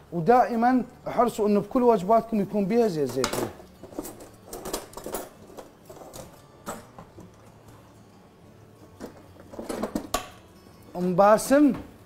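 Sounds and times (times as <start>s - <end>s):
kitchen items clattering: 2.8s - 7.8s, 8.8s - 10.4s.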